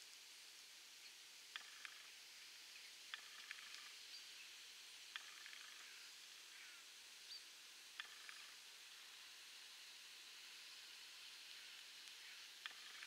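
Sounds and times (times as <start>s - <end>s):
steady low hiss: 0.0s - 13.0s
faint bird chirps: 1.0s - 8.6s, 11.5s - 13.0s.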